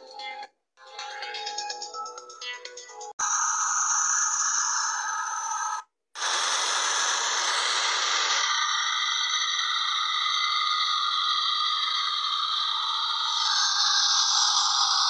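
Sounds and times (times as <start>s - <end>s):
engine whine over hiss: 3.2s - 15.0s.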